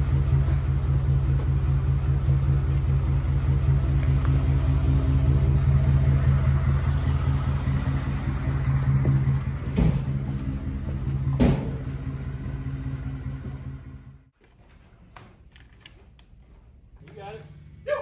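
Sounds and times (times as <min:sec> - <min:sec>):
vehicle engine idling: 0:00.0 - 0:14.4
thuds: 0:09.0 - 0:12.0.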